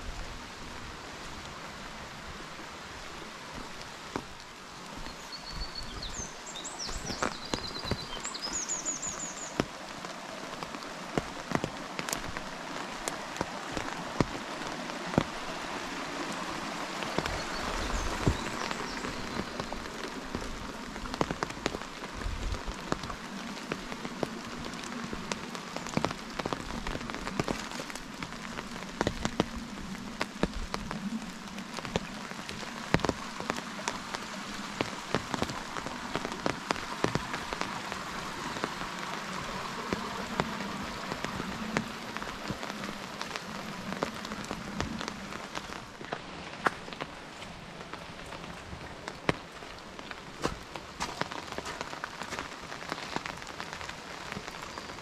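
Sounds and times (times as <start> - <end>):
raindrops ticking close by: 0.0 - 55.0
steady rain: 0.0 - 55.0
small bird chirping: 5.1 - 9.6.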